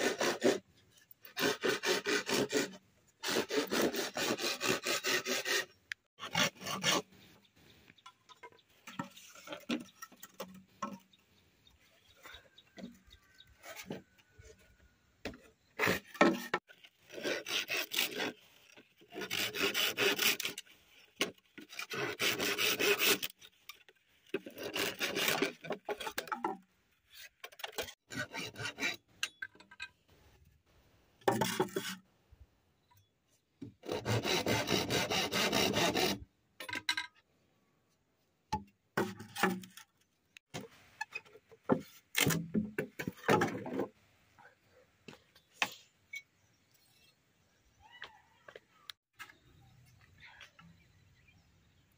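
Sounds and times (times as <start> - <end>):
machete sawing bamboo: 0.0 - 7.2, 15.8 - 23.5, 24.3 - 26.4, 27.6 - 29.0, 33.7 - 36.2.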